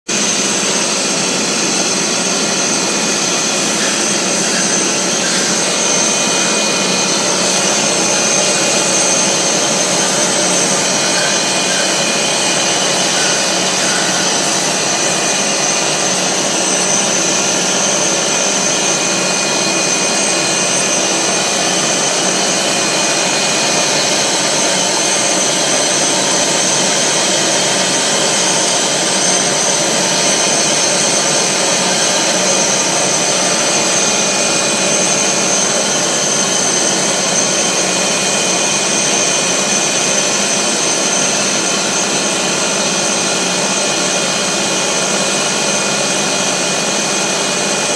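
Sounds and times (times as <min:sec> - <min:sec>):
high-pitched machine whine: 0:00.1 - 0:47.9.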